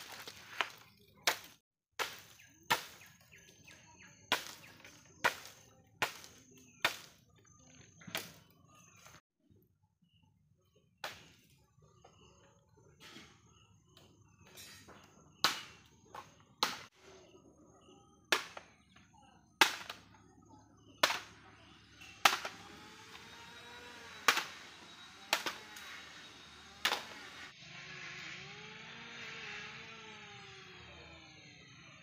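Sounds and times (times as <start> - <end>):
dead wood being struck: 0.0 - 3.1, 4.3 - 7.2, 15.4 - 15.8, 18.3 - 18.8, 19.6 - 20.0, 21.0 - 21.3, 22.2 - 22.6, 24.2 - 24.5.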